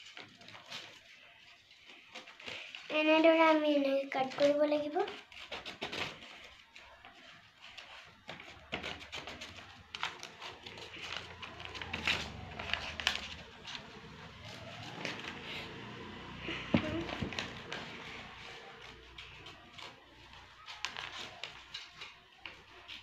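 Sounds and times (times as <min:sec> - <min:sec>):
scissors snipping paper: 0:00.0 - 0:03.2, 0:04.2 - 0:15.8, 0:16.8 - 0:23.0
paper crinkling and rustling: 0:00.0 - 0:23.0.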